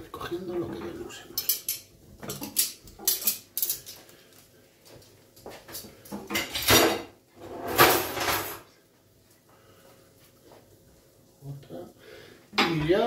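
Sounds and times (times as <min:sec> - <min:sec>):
kitchen things knocking: 0:05.8 - 0:08.6.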